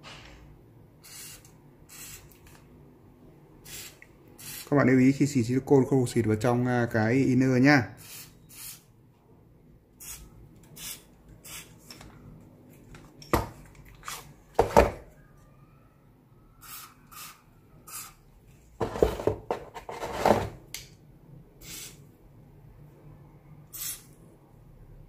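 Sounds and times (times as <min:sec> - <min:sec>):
aerosol spray hissing: 0:23.7 - 0:24.1.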